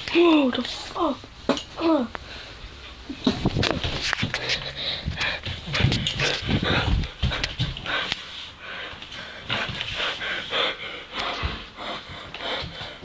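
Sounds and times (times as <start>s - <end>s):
rapid rough panting breaths: 4.3s - 13.0s.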